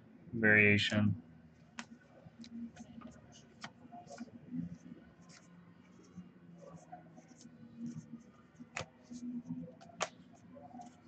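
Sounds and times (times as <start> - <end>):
trading cards rustling: 8.6 - 11.0.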